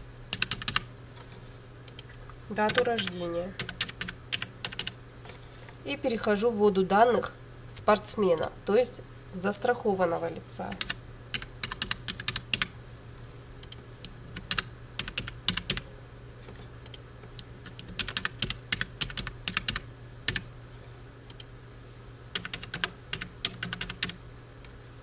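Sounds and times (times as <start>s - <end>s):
faint steady hum: 0.0s - 25.0s
typing on computer keyboard: 0.3s - 0.9s, 1.9s - 5.0s, 10.7s - 12.7s, 14.4s - 15.8s, 17.6s - 20.5s, 22.4s - 24.2s.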